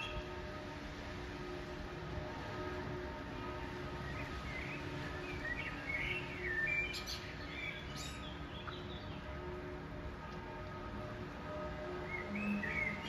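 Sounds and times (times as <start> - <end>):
low hum of city noise: 0.0 - 13.0
bird chirping and twittering: 4.1 - 9.2, 12.1 - 13.0.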